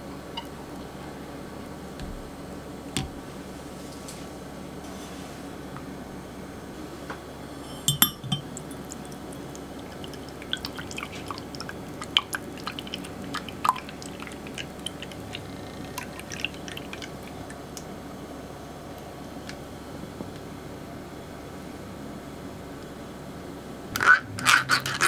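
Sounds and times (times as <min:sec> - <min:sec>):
sharp clink: 0:07.7 - 0:08.5
drips and small splashes: 0:08.0 - 0:17.9
liquid pouring through a strainer: 0:08.4 - 0:17.6.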